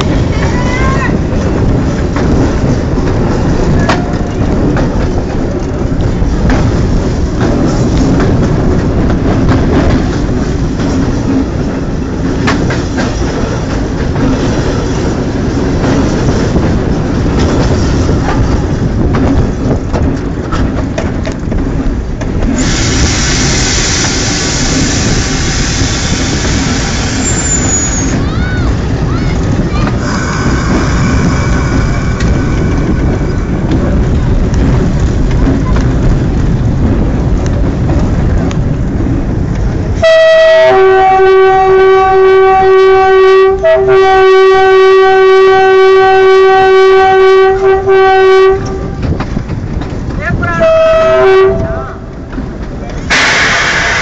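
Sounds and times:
train rumbling on rails: 0.0 - 54.0
sharp rail clicks: 1.2 - 40.0, 52.1 - 54.0.

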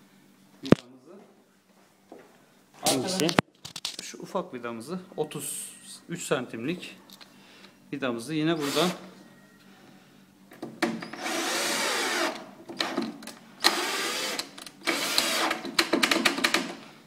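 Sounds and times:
cordless drill motor whirring: 8.6 - 9.0, 11.1 - 13.0, 13.6 - 15.6.

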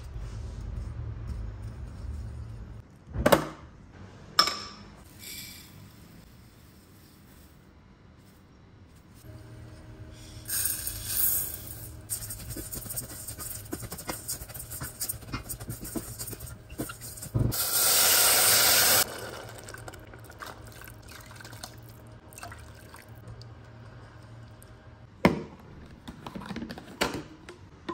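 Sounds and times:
water hissing in a hot pot: 17.5 - 19.6.

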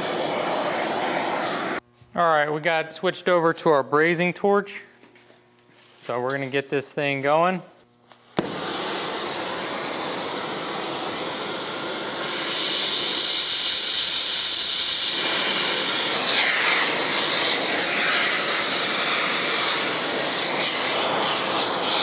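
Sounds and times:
torch flame hissing: 0.0 - 1.8, 8.2 - 22.0.

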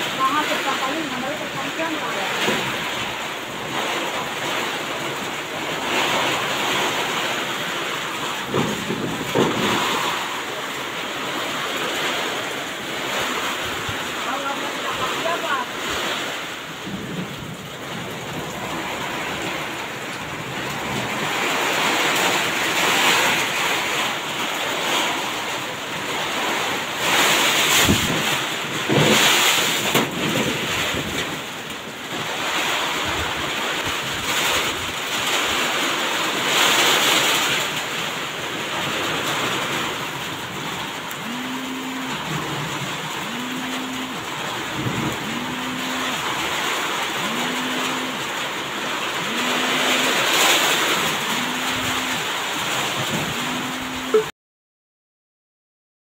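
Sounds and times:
steady rushing noise: 39.0 - 54.3
short rising pitched tones: 53.3 - 54.3.

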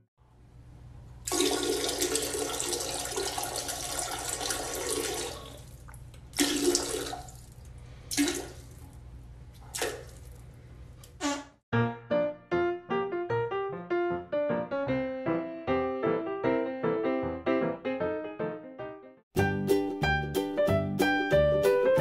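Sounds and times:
toilet flushing: 1.2 - 8.9.

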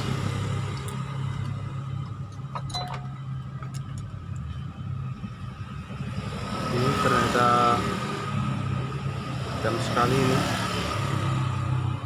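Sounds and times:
light metal clinks: 2.3 - 4.1.

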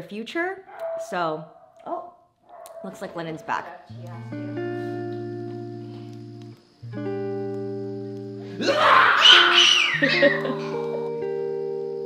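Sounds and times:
background music steady chord: 3.9 - 12.0
toddler squealing laugh: 8.6 - 10.8.

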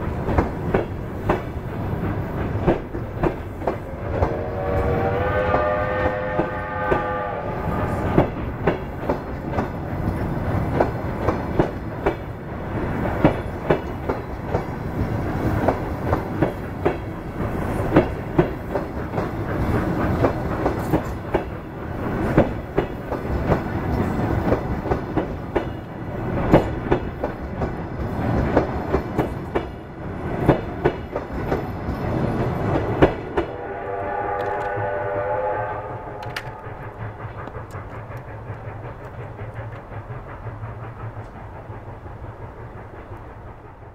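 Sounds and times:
train wheels clattering: 0.0 - 43.9
multi-tone train horn: 3.9 - 8.5, 33.3 - 36.8.

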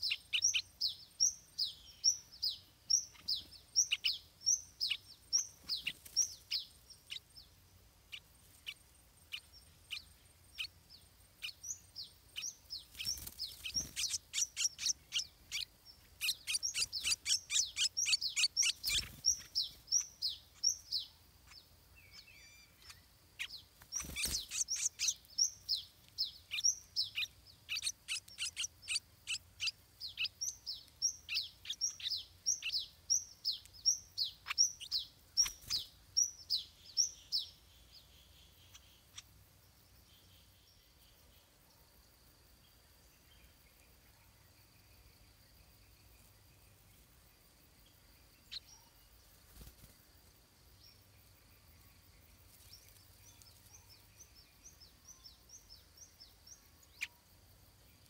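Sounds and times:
bird chick begging chirps: 0.0 - 10.8, 11.4 - 39.3.

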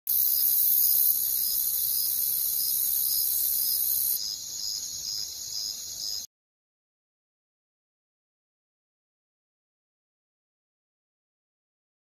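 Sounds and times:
insects chirring: 0.1 - 6.3.

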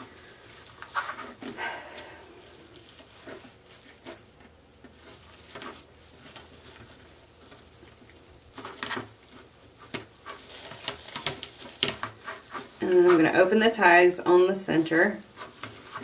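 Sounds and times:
mesh rustling and crinkling: 0.0 - 16.0.

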